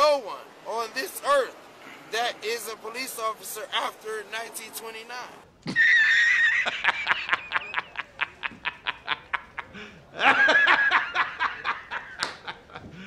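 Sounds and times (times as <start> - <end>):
man laughing hard: 5.7 - 13.0.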